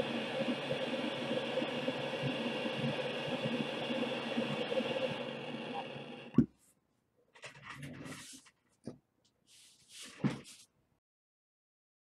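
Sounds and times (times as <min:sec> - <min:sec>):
gas torch hissing and crackling: 0:00.0 - 0:06.4.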